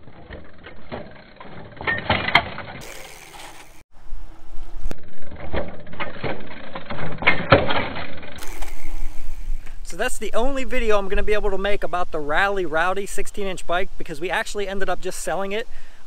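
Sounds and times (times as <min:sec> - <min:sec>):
bicycle tyres rolling on pavement: 0:00.0 - 0:11.9
bicycle freewheel clicking: 0:02.8 - 0:03.8, 0:08.3 - 0:09.9.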